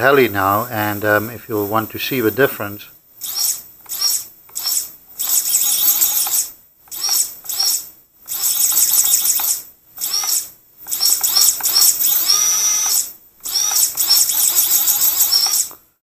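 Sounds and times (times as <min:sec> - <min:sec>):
drone motors whining: 0:03.2 - 0:15.8.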